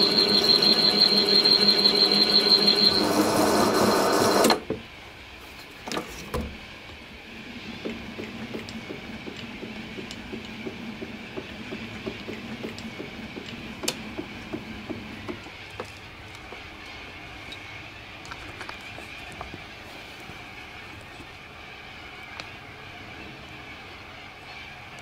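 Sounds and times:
drill motor whining: 0.0s - 4.6s.

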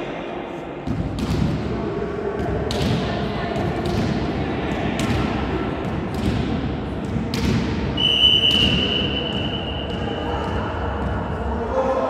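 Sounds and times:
referee's whistle blast: 8.0s - 9.9s.

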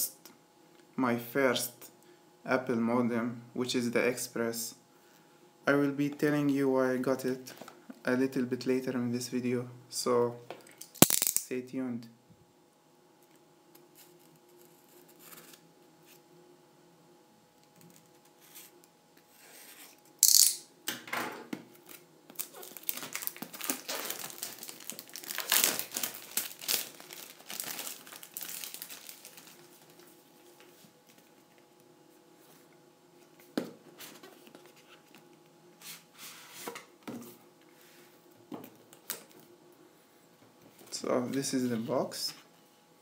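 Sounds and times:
plastic wrap ripping: 21.8s - 30.1s
plastic wrap crinkling: 21.8s - 30.2s.

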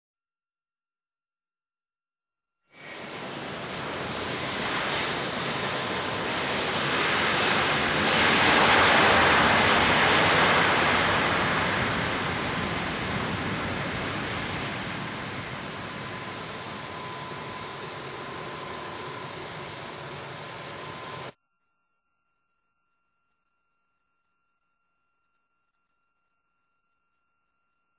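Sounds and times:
jet airliner engine rushing: 2.8s - 21.4s.

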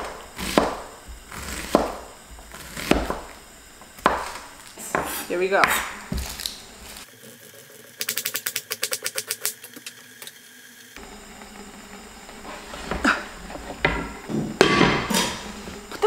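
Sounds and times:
knife scraping across board: 12.3s - 15.7s.

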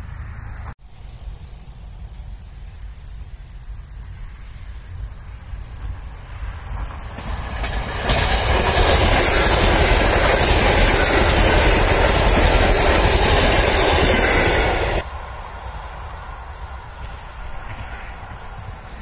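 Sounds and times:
train wheels rushing on rails: 4.9s - 19.0s.

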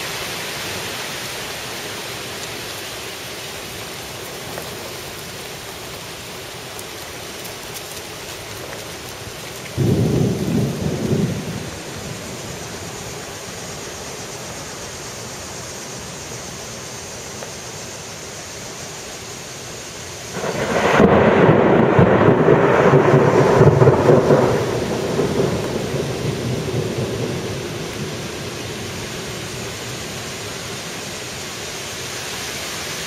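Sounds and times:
steady rain hiss: 0.0s - 33.0s
thunder: 9.8s - 12.8s, 20.3s - 28.5s.

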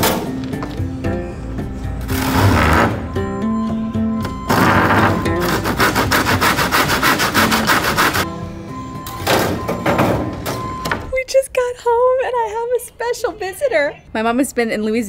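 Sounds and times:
background music: 0.0s - 13.0s
hand saw rasping through wood: 5.2s - 8.3s.

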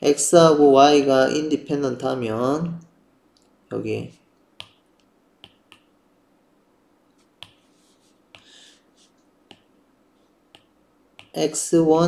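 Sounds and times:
pen writing on tablet screen: 4.0s - 6.0s, 7.2s - 11.5s
stylus taps on screen: 5.4s - 5.9s.

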